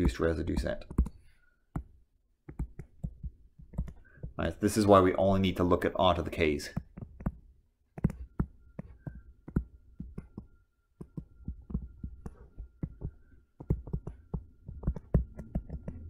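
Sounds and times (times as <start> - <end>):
stylus tapping on tablet screen: 0.0 - 4.4, 6.8 - 16.0.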